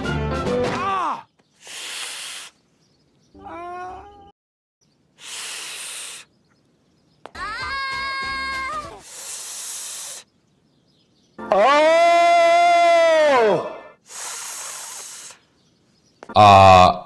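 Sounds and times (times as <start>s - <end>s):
man groaning: 16.4s - 17.0s.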